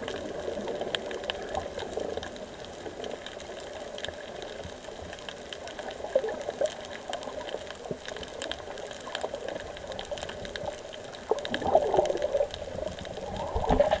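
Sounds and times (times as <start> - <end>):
muffled underwater water wash: 0.0 - 14.0
bubbling burble: 5.9 - 7.9, 8.6 - 14.0.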